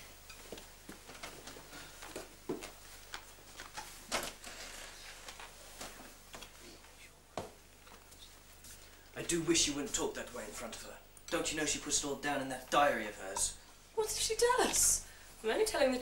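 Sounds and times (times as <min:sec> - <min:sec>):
clothing rustling: 0:00.0 - 0:09.1
footsteps: 0:00.0 - 0:10.0.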